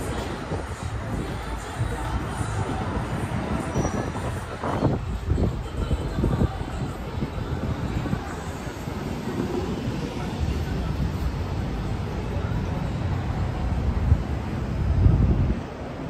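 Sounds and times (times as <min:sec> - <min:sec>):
passing traffic rumble: 0:00.0 - 0:16.0.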